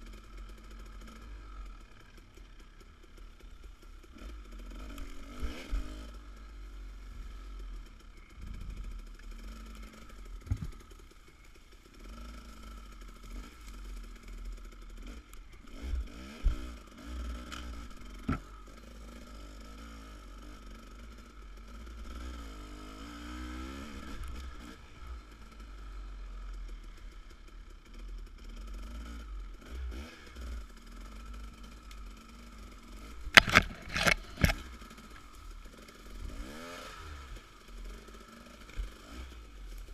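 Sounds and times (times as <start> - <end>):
dirt bike engine revving: 4.0 - 25.6, 27.9 - 39.9
knocks from bike: 10.4 - 11.0, 15.8 - 16.7, 17.6 - 18.6, 33.2 - 34.8
branches snapping and scraping: 17.4 - 18.6, 33.0 - 35.5.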